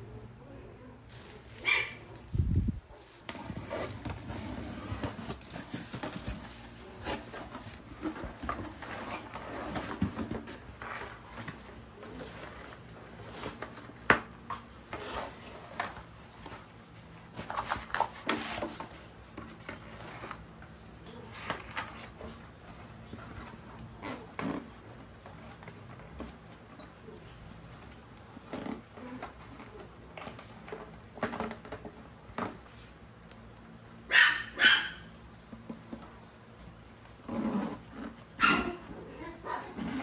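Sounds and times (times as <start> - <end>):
plastic wrapping crinkling: 1.0 - 9.4.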